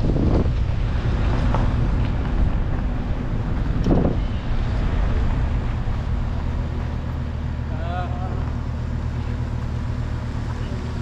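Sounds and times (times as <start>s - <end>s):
wind buffeting microphone: 0.0s - 7.7s.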